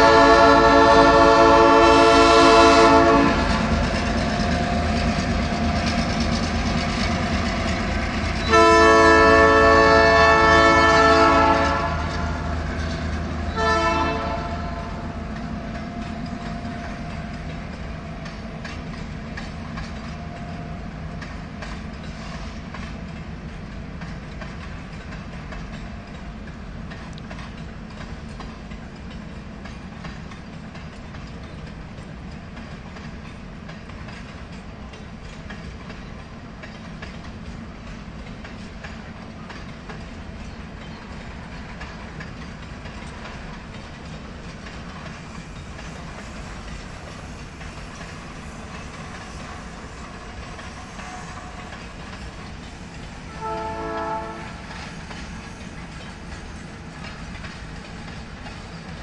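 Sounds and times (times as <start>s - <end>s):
locomotive horn blast: 0.0s - 3.6s, 8.4s - 12.5s, 13.5s - 15.1s, 53.3s - 54.7s
freight wagons rumbling past: 0.0s - 59.0s
wheels clicking over rail joints: 0.0s - 59.0s.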